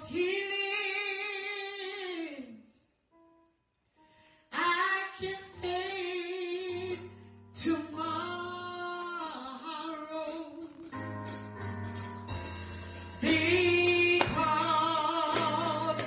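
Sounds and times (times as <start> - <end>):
woman singing gospel song: 0.0 - 2.6, 4.5 - 10.9, 13.2 - 16.0
instrumental backing with bass: 5.2 - 16.0.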